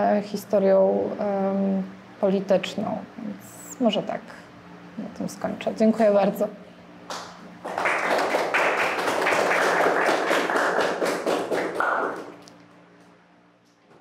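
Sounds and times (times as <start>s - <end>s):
audience applauding: 7.1s - 12.4s.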